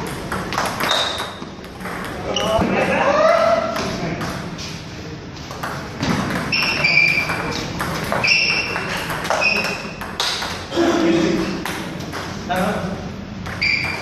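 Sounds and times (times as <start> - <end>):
ping pong ball clicking: 5.6 - 10.6
short high squeaks: 6.5 - 7.4, 8.2 - 10.0, 13.6 - 14.0.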